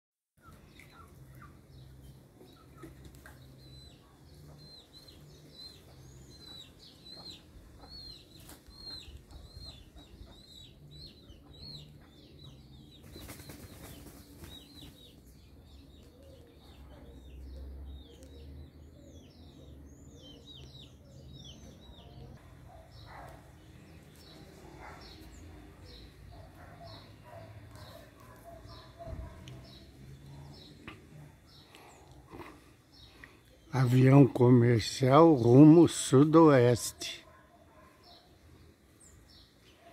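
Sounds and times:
small birds chirping: 0.4 - 39.9.

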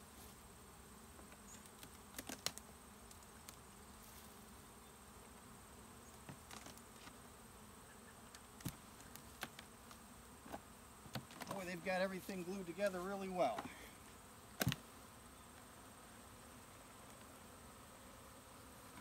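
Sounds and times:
honeybees buzzing: 0.0 - 19.0
hive boxes cracking loose: 1.6 - 3.6, 6.2 - 7.0, 8.3 - 11.6, 14.6 - 14.9.

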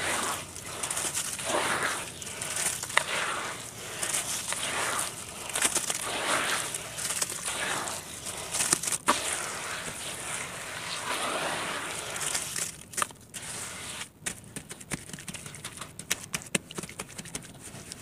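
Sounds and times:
hands squishing wet dirt paste: 0.0 - 18.0.

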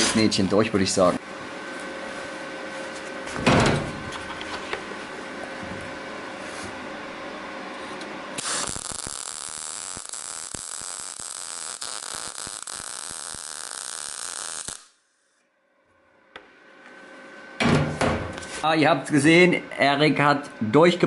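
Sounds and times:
steady hum: 0.0 - 21.0
welding arc crackling hiss: 8.4 - 15.4.

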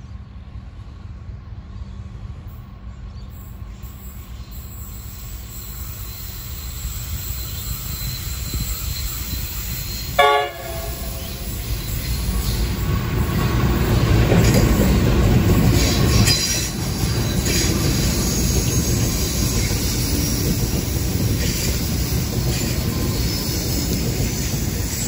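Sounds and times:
diesel locomotive engines: 0.0 - 25.0
train wheel clatter: 3.7 - 25.0
high-pitched wheel squeal: 4.0 - 12.9.

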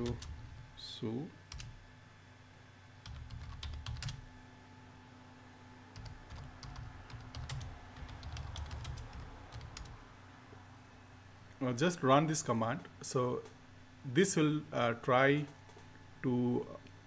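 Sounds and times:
typing on a computer keyboard: 0.0 - 0.4, 1.5 - 1.7, 3.0 - 4.2, 6.0 - 10.0.

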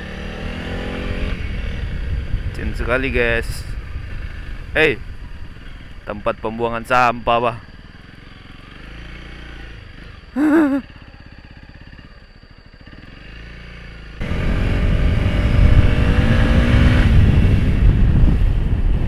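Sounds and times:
motorcycle engine accelerating: 0.0 - 2.5, 7.6 - 19.0
wind rushing over microphone: 1.3 - 5.6, 14.2 - 19.0.

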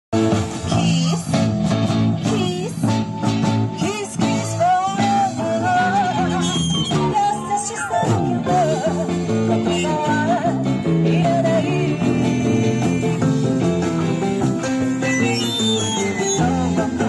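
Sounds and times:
live rock band playing: 0.2 - 17.0
woman singing: 0.7 - 1.4, 2.2 - 3.1, 3.7 - 13.3, 16.1 - 17.0.

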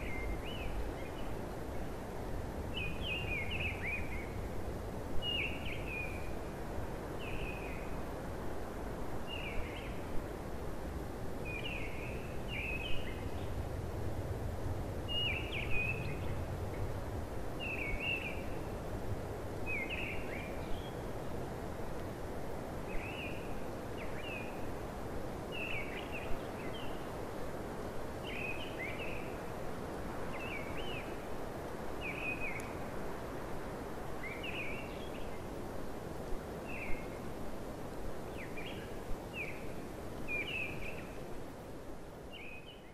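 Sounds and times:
songbird chirping: 0.0 - 2.0, 2.7 - 4.5, 5.2 - 6.5, 11.4 - 13.6, 15.0 - 16.9, 17.6 - 18.8, 19.6 - 21.2, 25.5 - 27.2, 28.2 - 35.6, 38.2 - 41.3, 42.2 - 42.9
outdoor background noise: 0.0 - 42.9.

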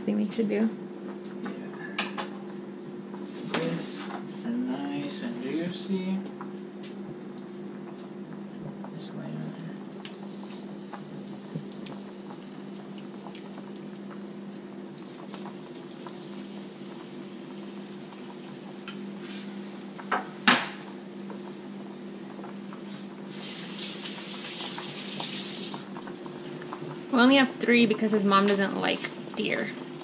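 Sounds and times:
pot of potatoes boiling: 7.4 - 30.0
meat sizzling in a frying pan: 14.9 - 20.9, 23.2 - 26.4.

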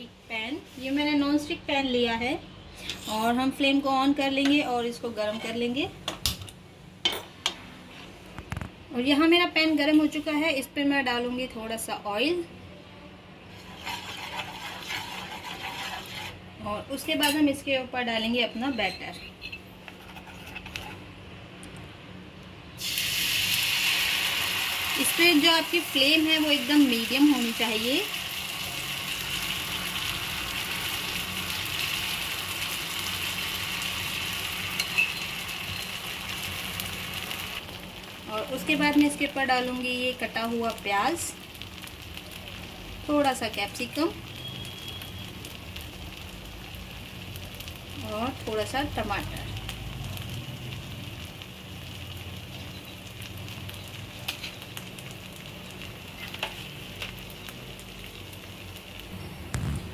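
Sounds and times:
batter sizzling in hot oil: 13.4 - 21.1, 22.7 - 59.9.

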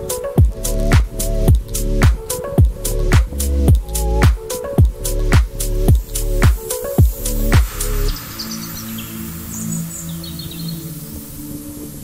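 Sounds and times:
drum beat: 0.0 - 7.9
soft background music: 0.0 - 12.0.

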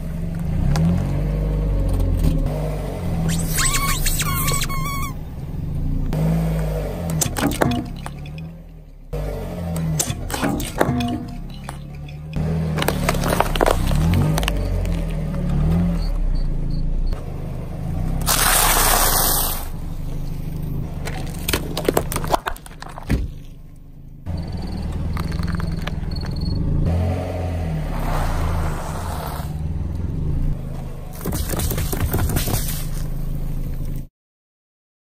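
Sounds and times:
car engine idling: 0.0 - 34.0
tyre crushing small objects: 10.0 - 15.9, 18.2 - 19.5, 21.0 - 23.6, 24.9 - 26.4, 31.2 - 33.1.

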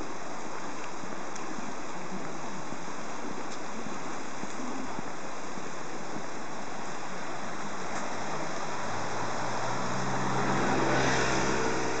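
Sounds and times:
rocky river rushing: 0.0 - 12.0
car engine humming: 7.5 - 12.0.

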